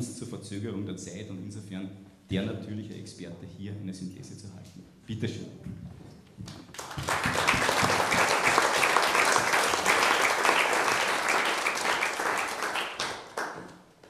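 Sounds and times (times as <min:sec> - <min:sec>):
audience applauding: 0:06.7 - 0:13.8.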